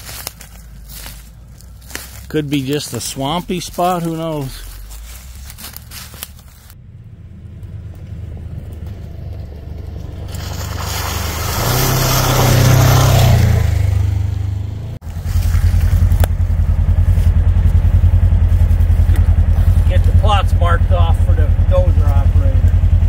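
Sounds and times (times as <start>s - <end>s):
engine idling: 0.0s - 11.8s, 12.6s - 23.0s
off-road vehicle engine driving: 0.0s - 23.0s
tyres hissing through mud: 10.0s - 13.9s.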